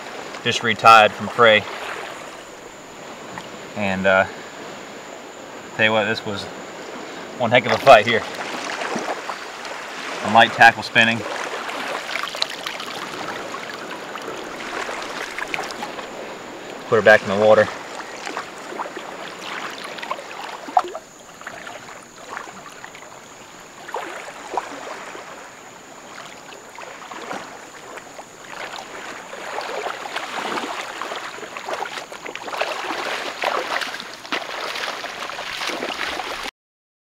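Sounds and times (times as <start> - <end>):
wading through water: 0.0 - 36.5
hands splashing in water: 11.2 - 16.0, 27.2 - 36.5.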